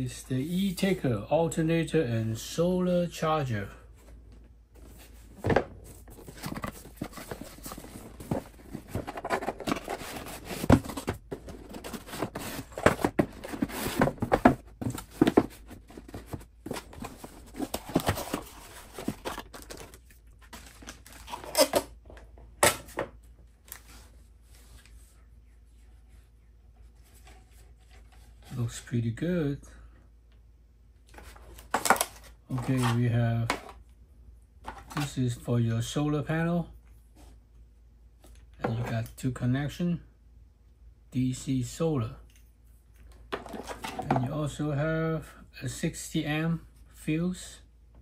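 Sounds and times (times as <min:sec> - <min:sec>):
cardboard and plastic packaging rustling: 0:03.9 - 0:25.0, 0:31.1 - 0:33.8, 0:43.1 - 0:44.3.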